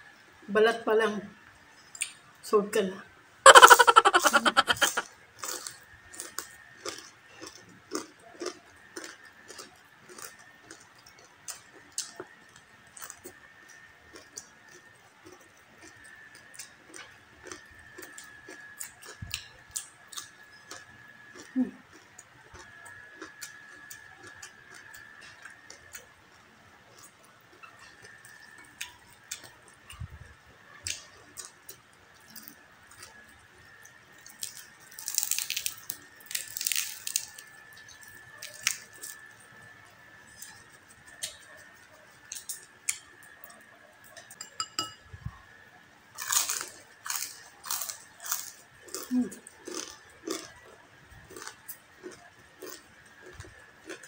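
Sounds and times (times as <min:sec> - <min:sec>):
crunchy chewing: 0:03.5 - 0:44.3, 0:46.2 - 0:54.0
crispy pork skin crackling: 0:34.3 - 0:39.3.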